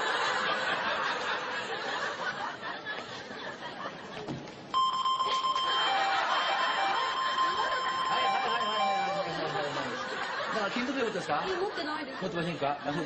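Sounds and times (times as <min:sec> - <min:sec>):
audience chuckling and murmuring: 0:00.0 - 0:04.7, 0:05.5 - 0:13.0
metal detector alarm tone: 0:04.8 - 0:09.8.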